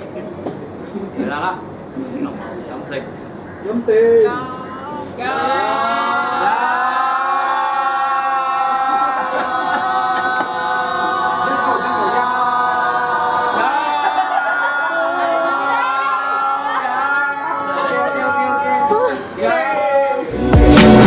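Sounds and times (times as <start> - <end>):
group shouting in unison: 5.2 - 20.3.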